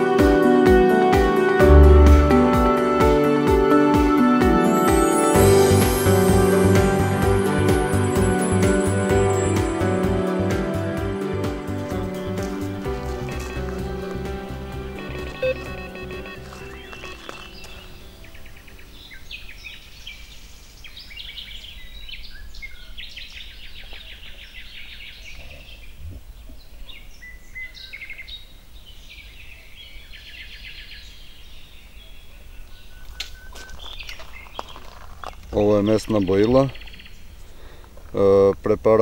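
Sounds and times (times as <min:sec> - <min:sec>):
songbirds singing: 0:11.9 - 0:39.0.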